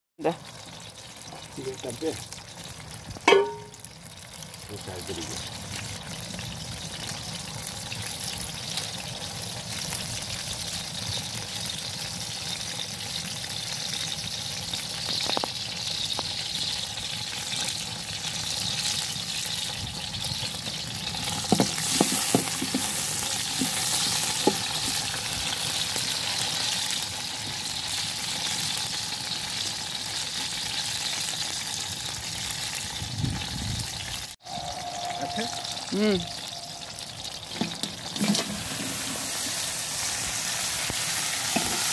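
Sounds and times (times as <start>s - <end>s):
garlic sizzling in oil: 0.2s - 41.9s
wooden spatula knocking wok: 3.3s - 3.8s, 21.2s - 25.0s.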